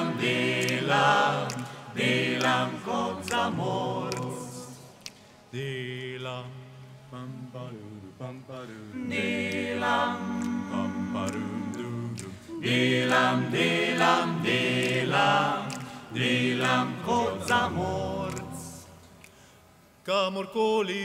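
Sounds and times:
a cappella group singing: 0.0 - 19.4.

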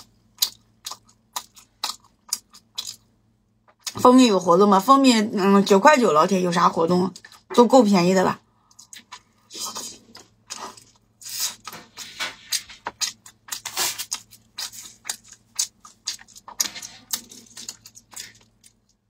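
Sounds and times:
crunching sweet corn: 0.0 - 3.1, 8.6 - 19.0.

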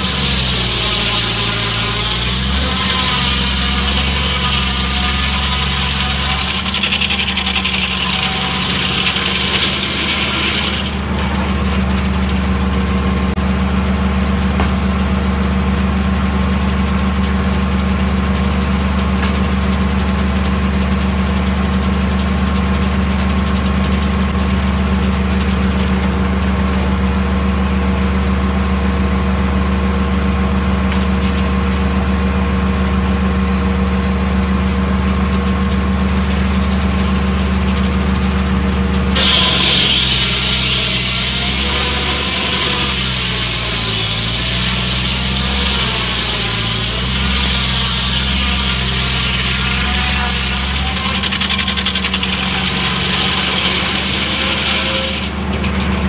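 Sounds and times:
sawmill engine running: 0.0 - 56.0
saw blade hissing through wood: 39.2 - 55.4.

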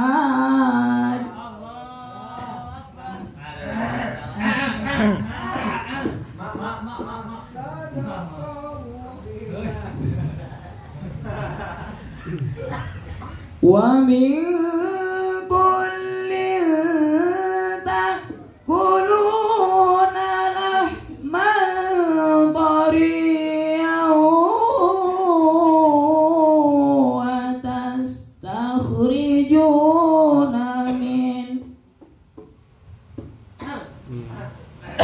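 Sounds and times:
man singing unaccompanied: 0.0 - 5.3, 13.6 - 31.8.

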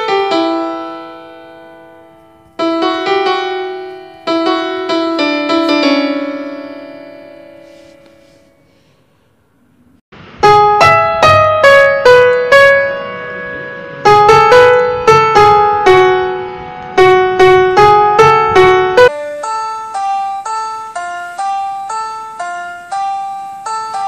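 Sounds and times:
piano melody: 0.0 - 24.0
bright keyboard line: 17.5 - 24.0.

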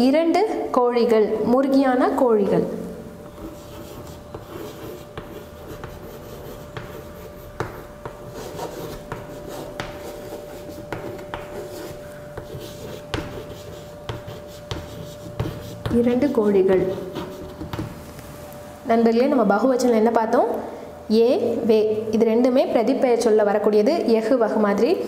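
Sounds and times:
faint steady hum: 0.0 - 25.0
chalk writing on chalkboard: 3.3 - 18.0.

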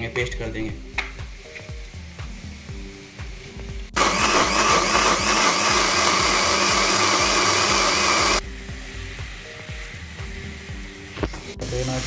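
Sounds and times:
electric blender grinding: 4.0 - 8.4.

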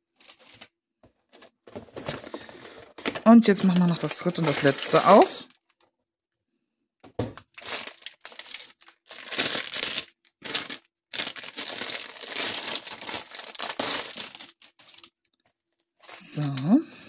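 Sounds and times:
plastic sleeve crinkling: 0.1 - 0.7, 2.0 - 5.7, 7.3 - 15.4.

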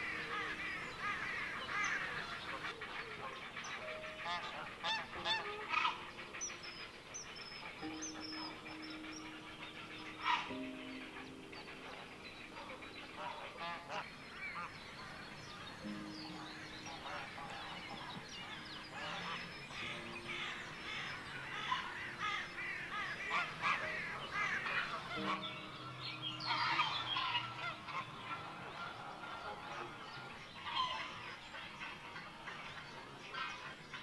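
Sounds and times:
water birds honking: 0.0 - 34.0.

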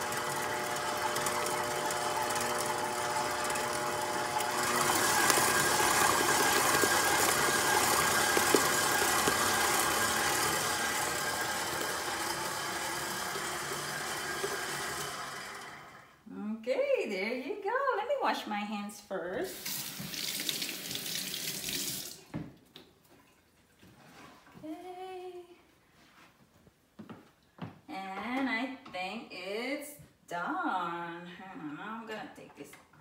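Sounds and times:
stand mixer motor whine: 0.0 - 16.1.

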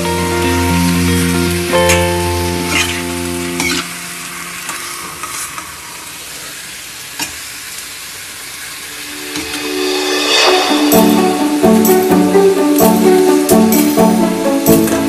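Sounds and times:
chicken sizzling in oil: 0.0 - 15.0.

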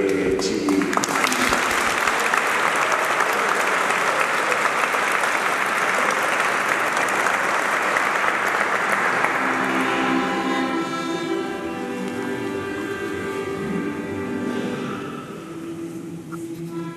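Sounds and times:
audience applauding: 0.0 - 11.4
sustained musical chords: 9.0 - 16.9.

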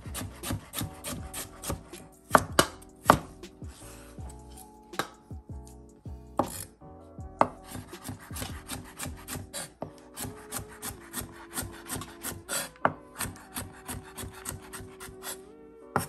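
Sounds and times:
knife chopping on wooden board: 0.1 - 3.6, 6.4 - 6.7, 7.4 - 15.4.

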